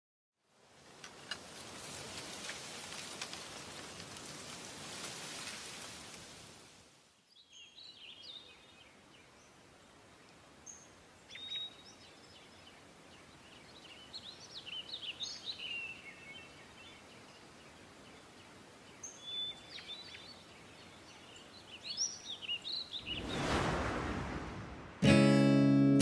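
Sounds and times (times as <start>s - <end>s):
rain-like hiss: 0.4s - 25.1s
birds chirping: 10.7s - 24.0s.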